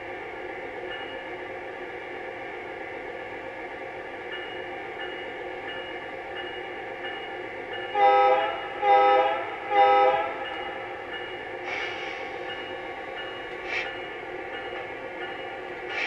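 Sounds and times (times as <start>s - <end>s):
model locomotive horn blasts: 8.0s - 10.4s
brief hiss: 11.7s - 12.4s.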